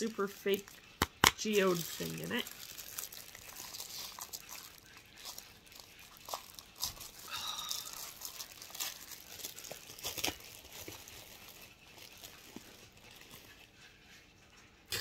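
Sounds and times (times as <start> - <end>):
bag crinkling and rustling: 0.0 - 14.1.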